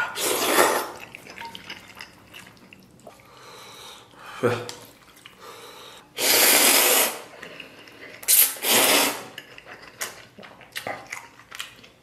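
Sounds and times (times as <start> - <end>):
noodles being slurped: 0.0 - 3.2, 6.2 - 12.0.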